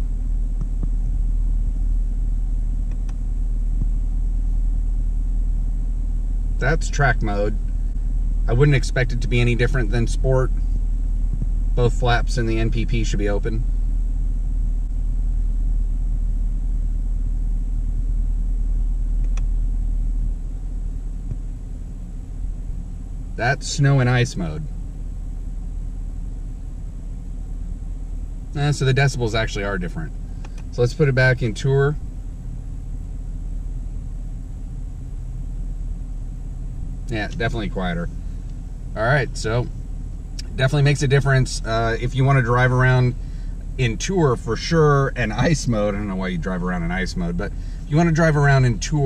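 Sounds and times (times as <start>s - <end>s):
car engine idling: 0.0s - 49.0s
faint clicks: 2.8s - 3.2s, 19.2s - 19.5s, 30.4s - 30.7s.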